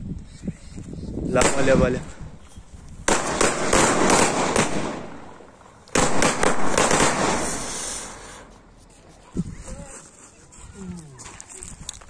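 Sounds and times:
firecracker cracks: 3.0s - 8.5s.

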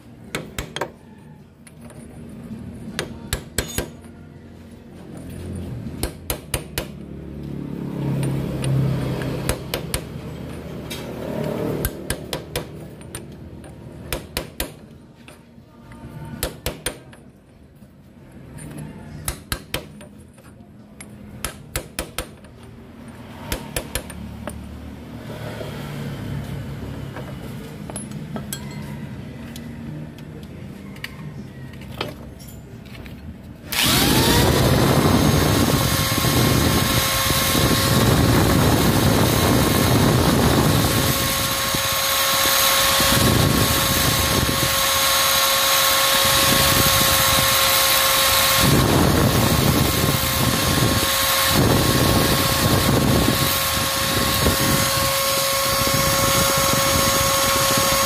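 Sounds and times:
angle grinder whine: 33.7s - 58.0s.

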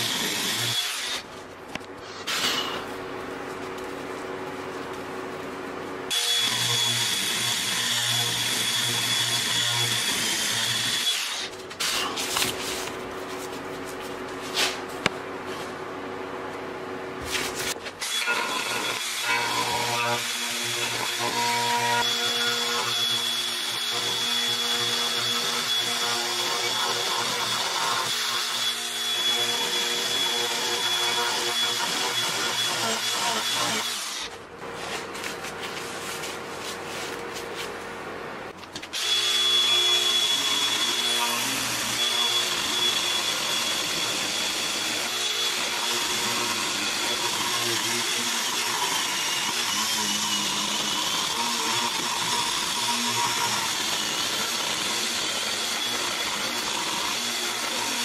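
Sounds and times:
angle grinder whining into wood: 0.0s - 1.2s, 6.1s - 12.1s, 18.0s - 34.4s, 38.9s - 58.0s.

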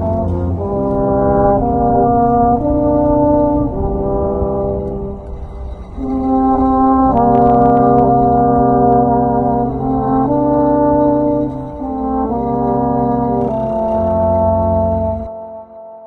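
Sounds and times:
brass ensemble playing chords: 0.0s - 15.8s.

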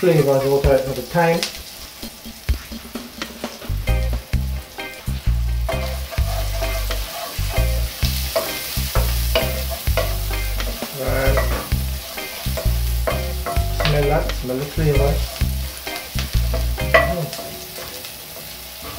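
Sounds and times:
butter sizzling: 0.0s - 18.9s
wooden spoon scraping pot: 5.7s - 7.7s, 15.0s - 15.6s
spoon knocking against pot: 13.1s - 14.0s, 16.6s - 17.3s.

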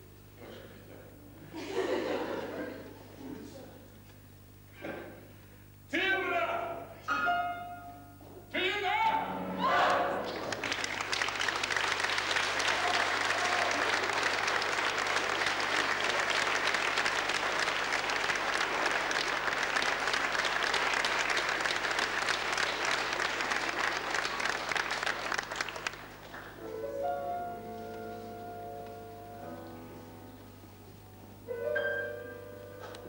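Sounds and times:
grand piano notes: 7.0s - 11.1s, 26.4s - 33.0s
audience applauding: 9.8s - 26.7s.

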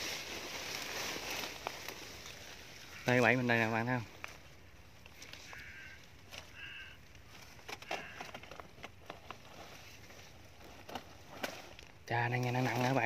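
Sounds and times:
leaves rustling: 0.0s - 13.0s
bird calling: 2.4s - 4.0s, 5.1s - 8.6s.

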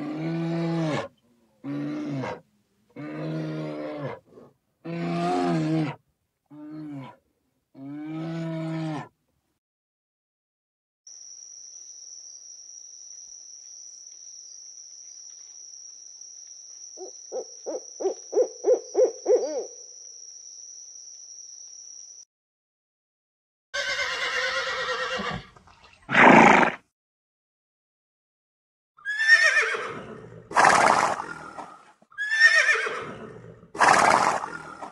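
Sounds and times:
high insect drone: 11.1s - 22.3s
owl hooting: 17.0s - 19.9s
horse whinnying: 23.8s - 25.5s, 26.1s - 26.8s, 29.0s - 31.4s, 32.1s - 34.7s.

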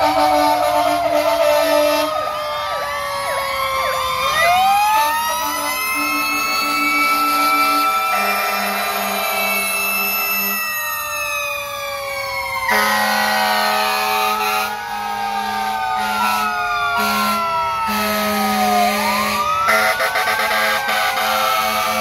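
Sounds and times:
truck air horn blasts: 0.0s - 2.2s, 5.5s - 10.6s, 12.7s - 14.7s, 16.0s - 22.0s
fire engine sirens wailing: 0.0s - 22.0s.

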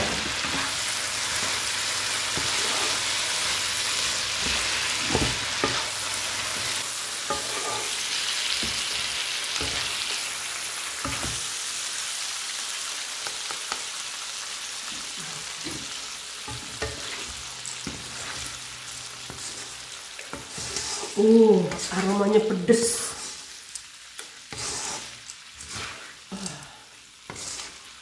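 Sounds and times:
spatula scraping a pan: 0.0s - 10.3s, 10.9s - 11.5s, 15.4s - 23.6s, 24.2s - 26.3s, 27.2s - 28.0s
food sizzling in a frying pan: 0.0s - 28.0s.

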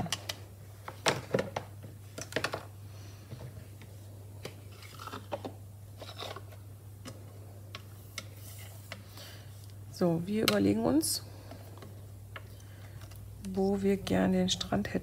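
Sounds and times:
craft supplies knocking and rustling: 0.0s - 2.7s.

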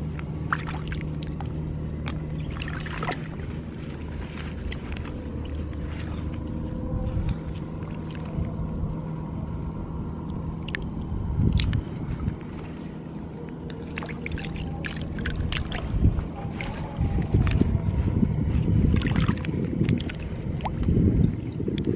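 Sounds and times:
hands splashing in muddy water: 0.0s - 8.6s, 13.7s - 20.9s
steady low rumble: 0.0s - 21.9s.

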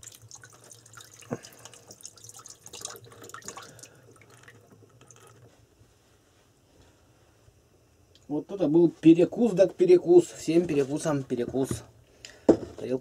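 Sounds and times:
water splashing into a basin: 0.0s - 5.4s.

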